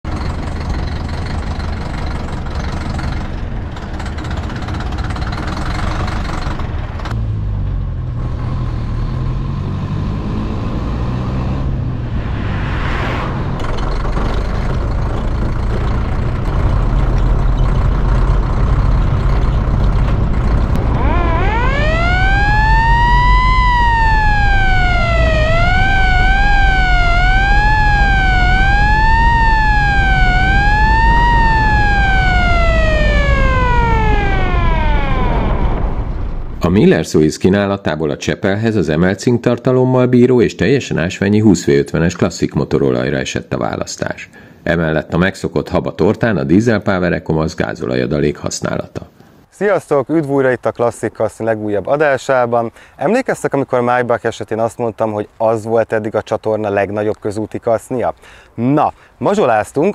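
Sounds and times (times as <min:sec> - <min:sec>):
diesel engine running: 0:00.0 - 0:08.9, 0:11.6 - 0:36.9
wailing siren: 0:11.7 - 0:14.2, 0:20.7 - 0:36.7.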